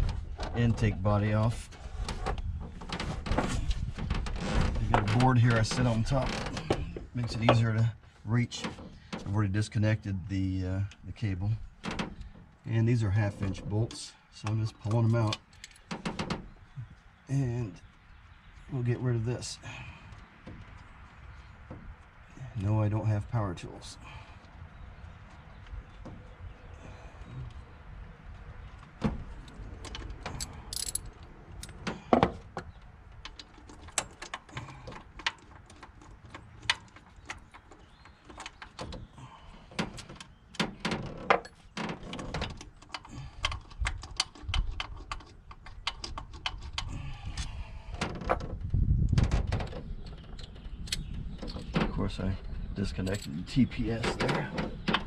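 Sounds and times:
wrench clinking on metal bolts: 0:30.3 - 0:31.8.

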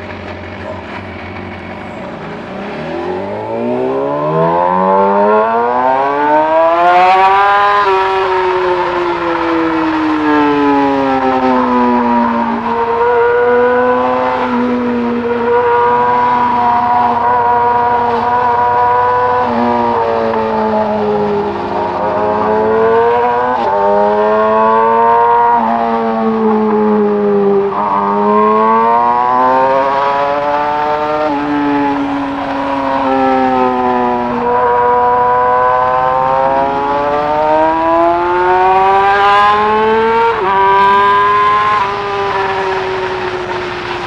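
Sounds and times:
motorcycle engine revving with upshifts: 0:00.0 - 0:44.0.

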